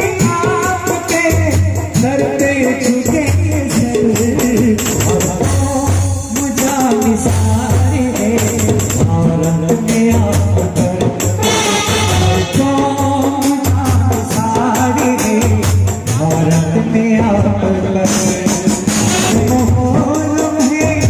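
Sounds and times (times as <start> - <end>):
brass band playing: 11.4 - 13.2, 18.0 - 19.7.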